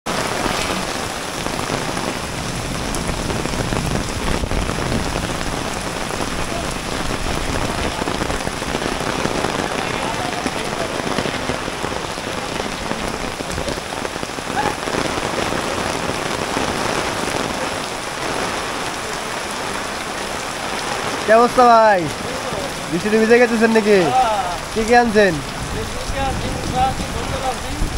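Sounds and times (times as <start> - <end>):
steady rain on wet lane: 0.1 - 27.9.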